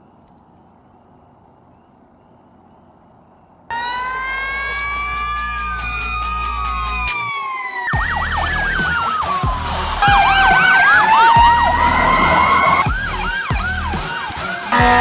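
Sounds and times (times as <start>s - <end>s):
siren wailing: 3.7s - 15.0s
siren yelping: 3.7s - 15.0s.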